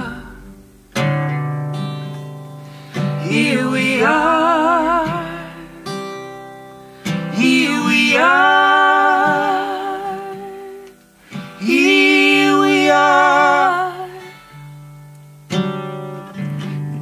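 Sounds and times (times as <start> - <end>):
person singing long notes: 0.0 - 0.7, 2.2 - 14.7
acoustic guitar strumming: 0.0 - 17.0.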